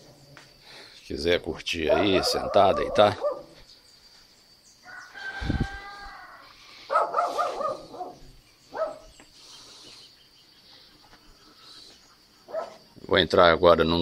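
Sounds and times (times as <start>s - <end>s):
animal calls: 1.9s - 3.6s, 5.0s - 9.9s.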